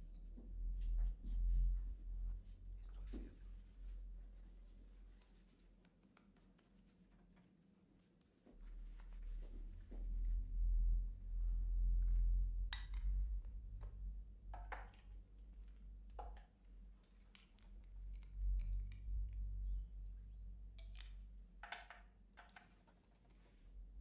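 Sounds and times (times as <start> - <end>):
rustles and clicks of people moving: 0.0 - 10.6
room tone hum: 0.0 - 24.0.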